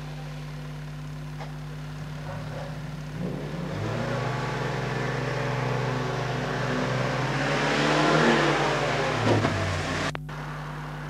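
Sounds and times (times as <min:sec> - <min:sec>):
steady low hum: 0:00.0 - 0:11.0
truck diesel engine pulling away: 0:03.2 - 0:10.6.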